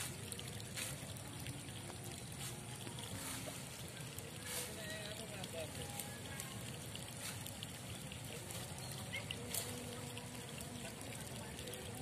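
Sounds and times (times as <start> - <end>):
water trickling: 0.0 - 12.0.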